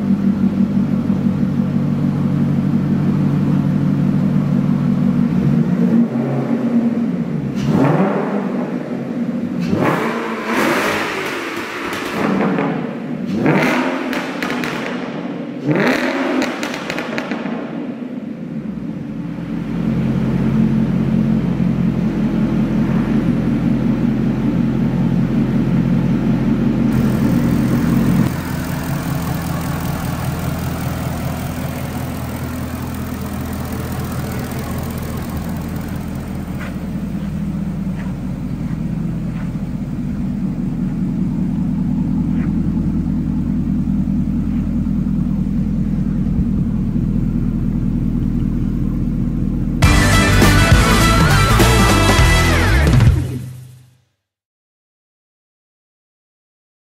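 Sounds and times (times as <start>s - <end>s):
car engine idling: 0.0s - 7.6s, 16.6s - 53.5s.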